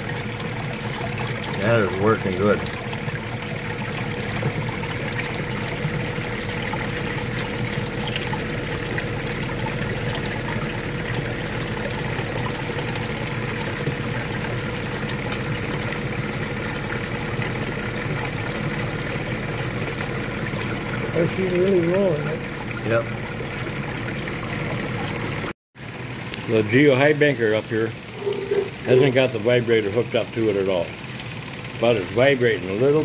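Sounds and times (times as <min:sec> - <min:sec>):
water running over sluice: 0:00.0 - 0:33.0
machinery hum: 0:27.6 - 0:29.5.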